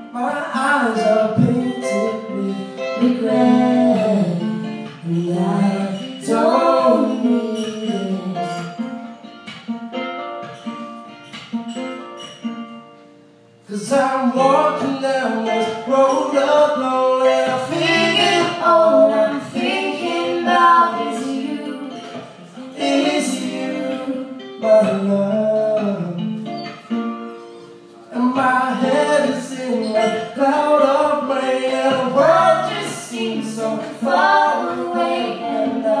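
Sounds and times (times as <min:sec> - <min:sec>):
guitar accompaniment: 0:00.0 - 0:36.0
woman singing: 0:00.2 - 0:08.8, 0:17.2 - 0:24.5, 0:28.2 - 0:36.0.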